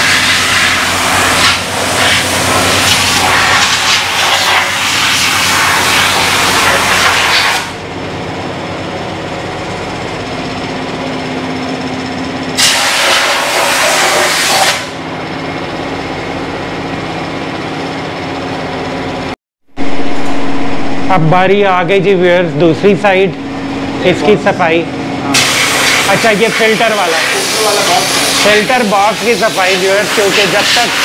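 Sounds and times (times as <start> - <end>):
pressure washer hissing: 0.0 - 7.8, 12.6 - 14.9, 25.3 - 31.0
low workshop hum: 0.0 - 31.0.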